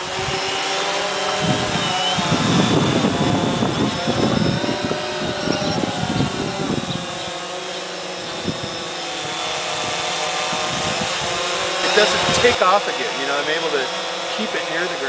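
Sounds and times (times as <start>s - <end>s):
quadcopter whine: 0.0s - 15.0s
wind gusts on microphone: 0.0s - 15.0s.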